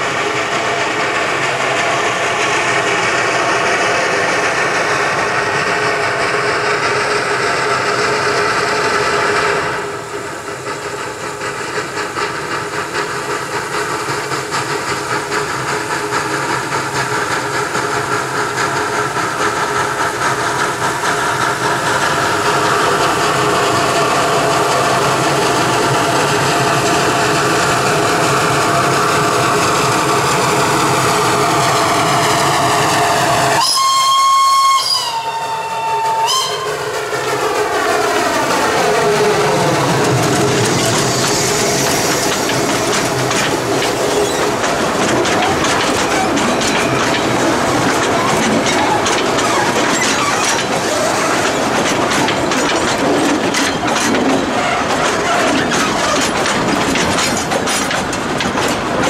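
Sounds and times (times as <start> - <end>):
train wheels clattering on rails: 0.0 - 59.0
steam locomotive whistle: 32.6 - 36.9.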